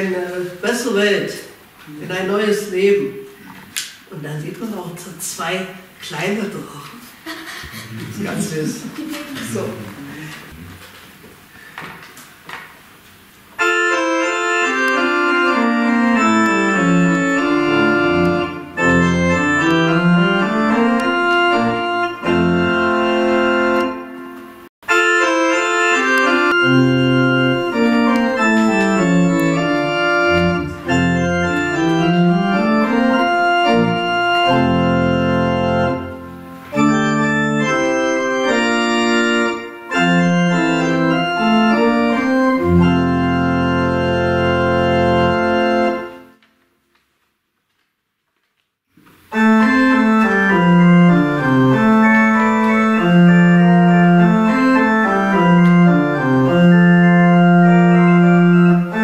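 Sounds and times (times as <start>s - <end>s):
church pipe organ playing: 13.4s - 46.5s, 49.2s - 59.0s.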